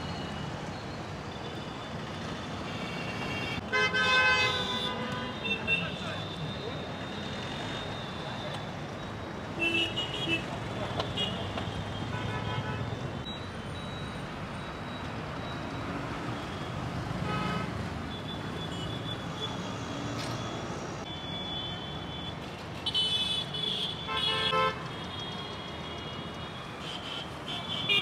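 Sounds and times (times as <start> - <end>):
road traffic: 0.0 - 28.0
vehicle horns tooting: 2.6 - 8.5, 9.6 - 13.1, 17.1 - 19.8, 21.0 - 28.0.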